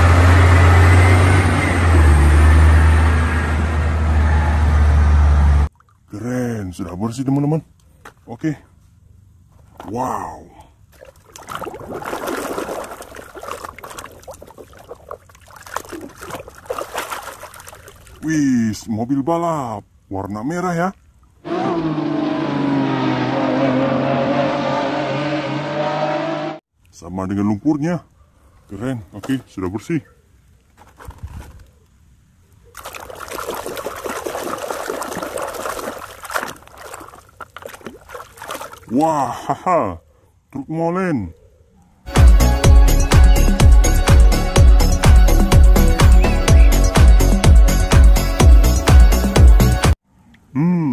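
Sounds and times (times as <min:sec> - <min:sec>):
water sloshing and splashing in tub: 0:05.7 - 0:06.2, 0:10.8 - 0:18.3, 0:32.7 - 0:39.1.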